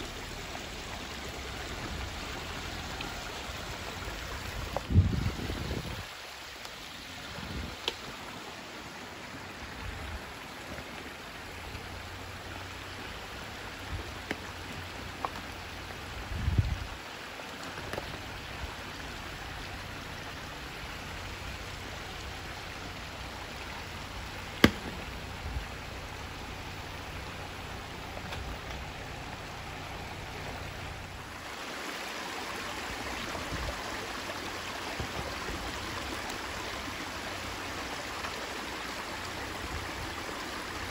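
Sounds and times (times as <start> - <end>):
creek rushing: 0.0 - 40.9
dull thump: 24.6 - 25.1.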